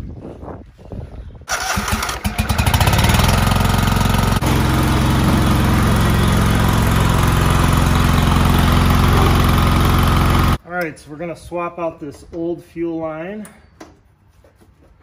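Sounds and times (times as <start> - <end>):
lawn tractor engine starting: 1.5 - 10.6.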